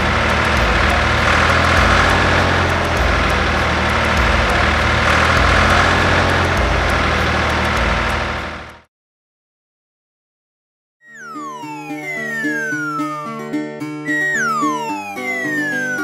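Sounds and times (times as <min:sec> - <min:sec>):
tractor engine rumbling: 0:00.0 - 0:08.8.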